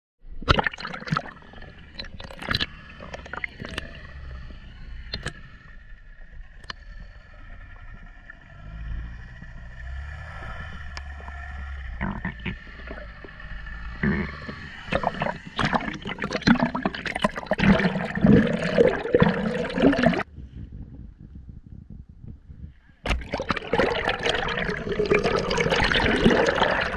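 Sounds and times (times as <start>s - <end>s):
water splashing and gurgling: 0.4s - 20.3s, 23.1s - 26.9s
muffled underwater noise: 0.9s - 21.5s.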